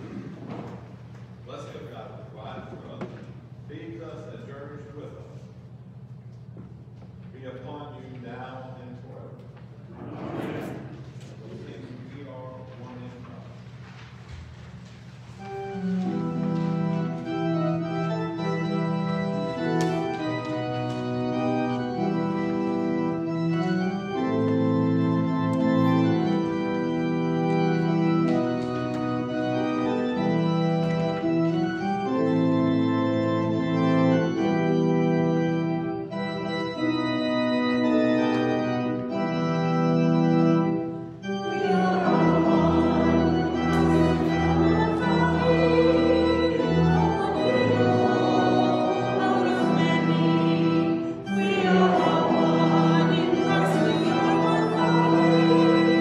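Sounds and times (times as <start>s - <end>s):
church organ playing hymn: 0.0s - 56.0s.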